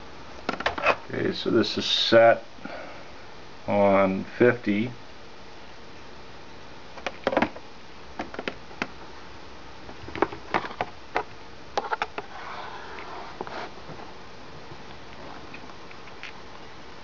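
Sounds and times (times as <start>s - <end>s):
faint steady hum: 0.0s - 17.0s
soft rustle: 12.2s - 16.4s.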